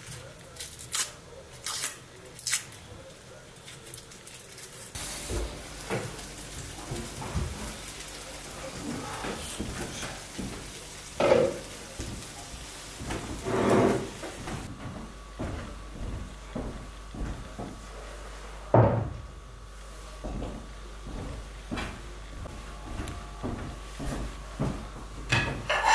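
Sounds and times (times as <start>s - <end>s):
food sizzling in a frying pan: 4.9s - 14.7s.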